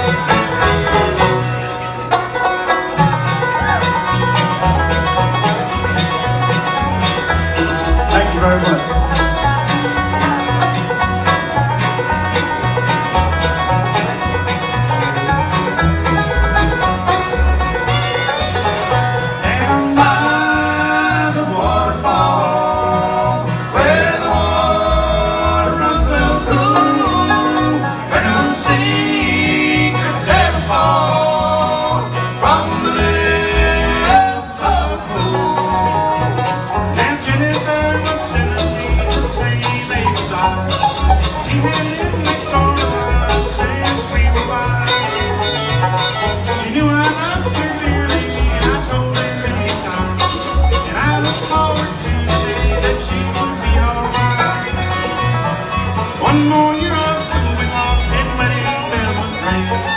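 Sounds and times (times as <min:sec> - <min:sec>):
bluegrass band playing: 0:00.0 - 0:59.9
two voices singing: 0:19.4 - 0:45.3, 0:46.4 - 0:54.4.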